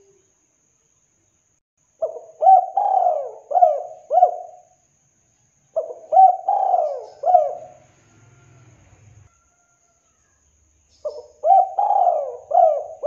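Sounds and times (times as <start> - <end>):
dove cooing: 2.0 - 4.8, 5.8 - 8.5, 11.0 - 13.0.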